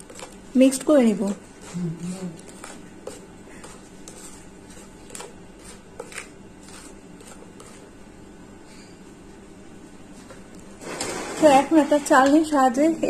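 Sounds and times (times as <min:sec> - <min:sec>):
wooden spoon scraping through flour: 0:00.0 - 0:08.0, 0:10.8 - 0:12.6.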